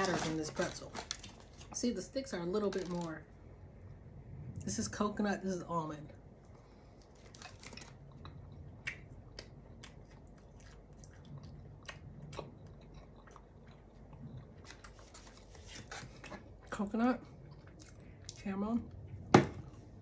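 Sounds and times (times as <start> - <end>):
person chewing: 6.4 - 18.4.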